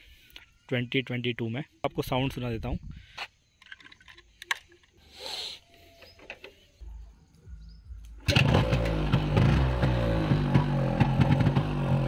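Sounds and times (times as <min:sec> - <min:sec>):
two-stroke motorcycle engine running: 0:08.2 - 0:12.0.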